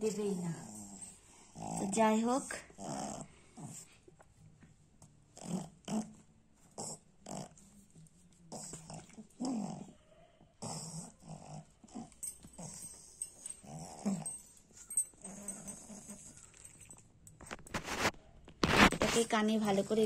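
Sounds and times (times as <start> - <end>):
dog grunting and whining: 0.1 - 4.0, 5.3 - 7.8, 8.5 - 17.1.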